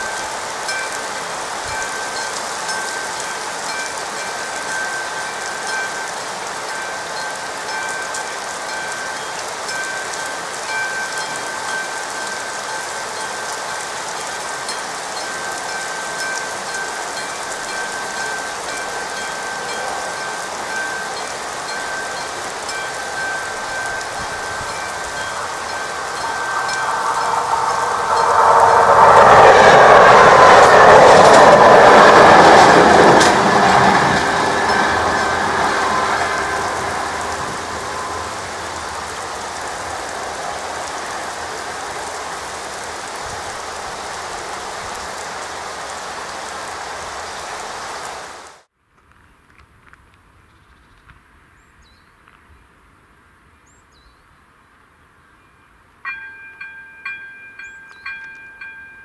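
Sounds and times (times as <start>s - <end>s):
level-crossing warning bell ringing: 0.0s - 43.6s, 56.0s - 59.0s
train approaching: 0.0s - 48.7s, 55.9s - 59.0s
rain hiss: 0.0s - 59.0s.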